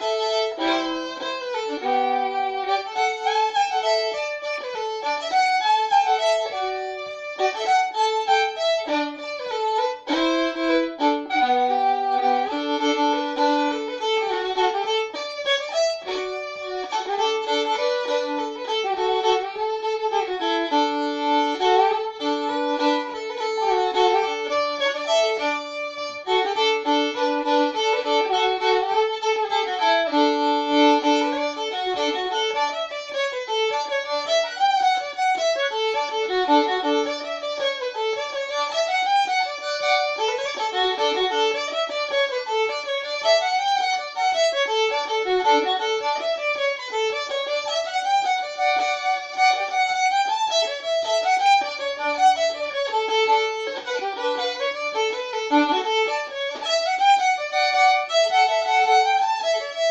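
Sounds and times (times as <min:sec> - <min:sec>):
solo fiddle dance tune: 0:00.0 - 0:59.9.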